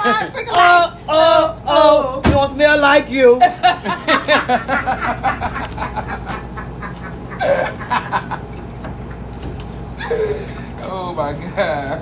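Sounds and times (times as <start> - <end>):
indistinct voices and laughter: 0.0 - 1.4, 3.2 - 8.6
low machine hum: 0.0 - 12.0.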